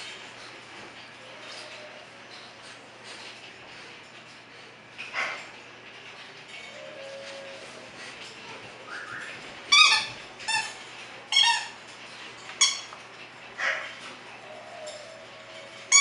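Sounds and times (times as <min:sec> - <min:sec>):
squeaky dog toy squeaking: 0:09.7 - 0:11.8, 0:12.6 - 0:12.9.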